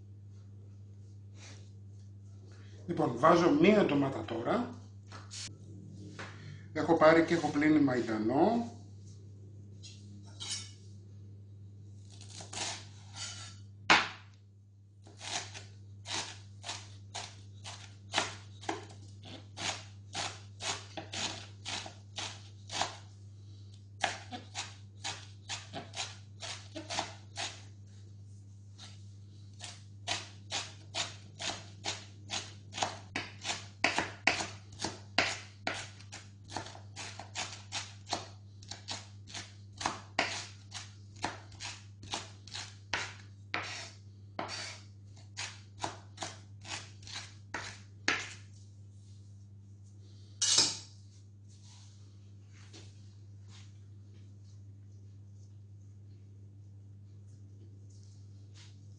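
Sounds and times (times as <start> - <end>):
knife chopping on wooden board: 13.9 - 14.3, 15.1 - 23.0, 24.0 - 27.6, 30.1 - 44.8, 45.4 - 48.4.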